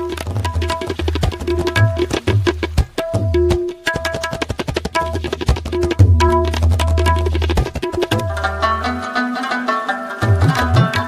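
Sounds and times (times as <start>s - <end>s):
fast hand-drum percussion: 0.0s - 11.0s
held melodic notes: 6.1s - 11.0s.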